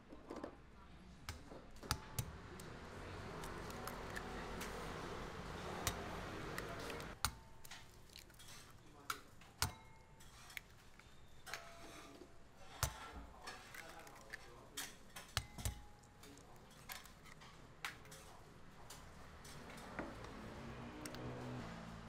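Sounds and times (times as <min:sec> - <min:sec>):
eggs cracking on ceramic bowl: 0:03.4 - 0:04.9, 0:05.8 - 0:11.6.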